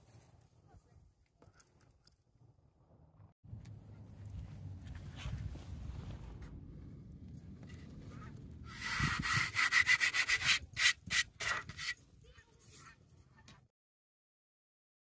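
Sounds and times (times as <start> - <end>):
hand rubbing on plywood: 8.7 - 12.0.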